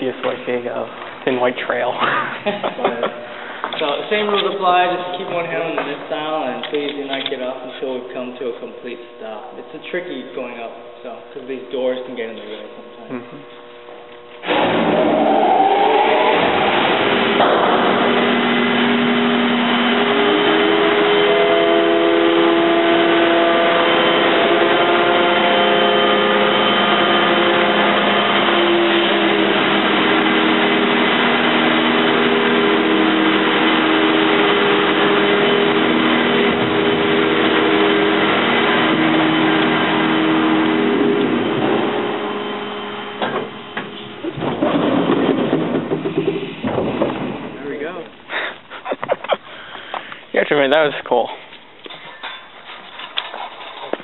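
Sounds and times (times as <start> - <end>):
elevator machine drone: 0.0 - 49.4
knocks: 43.2 - 47.6.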